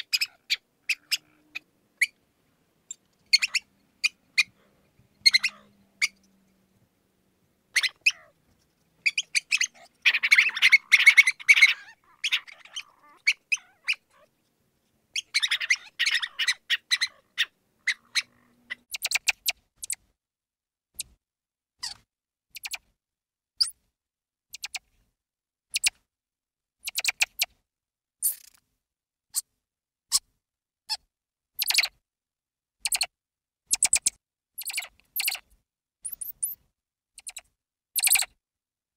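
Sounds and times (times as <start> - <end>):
mouse squeaking: 0.0 - 2.2, 2.9 - 4.6, 5.2 - 6.3, 7.7 - 14.3, 15.1 - 20.0, 21.0 - 21.2, 21.8 - 22.9, 24.5 - 24.9, 25.7 - 26.0, 26.8 - 27.5, 28.2 - 28.6, 30.9 - 32.0, 32.8 - 33.1, 33.7 - 36.6, 37.2 - 38.4.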